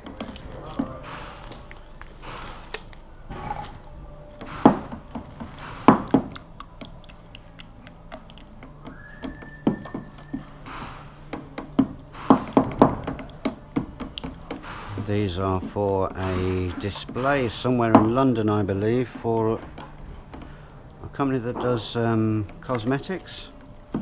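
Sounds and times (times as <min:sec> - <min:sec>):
knocks and taps on plastic: 0:04.6 - 0:06.4, 0:11.3 - 0:14.9.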